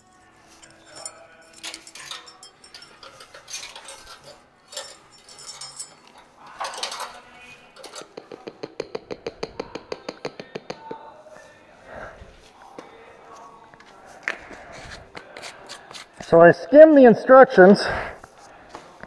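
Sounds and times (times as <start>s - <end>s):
metal rings clinking: 0.0s - 8.5s.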